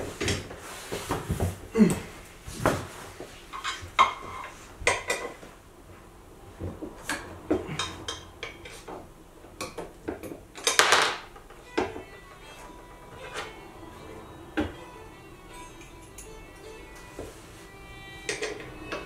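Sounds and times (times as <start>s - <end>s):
scuffling noise: 0.0s - 4.8s.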